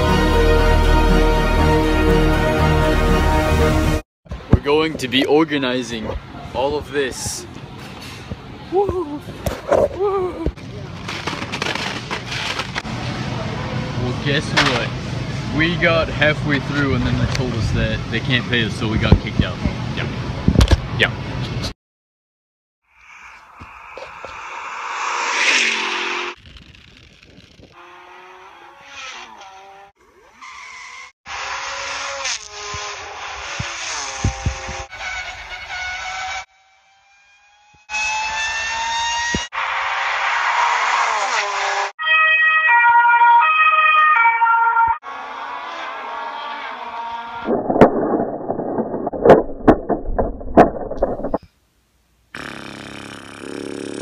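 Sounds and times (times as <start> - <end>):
electronic siren-like sound: 42.0 - 45.0
two-tone toy siren: 42.0 - 45.1
scraping on dirt: 46.8 - 51.5.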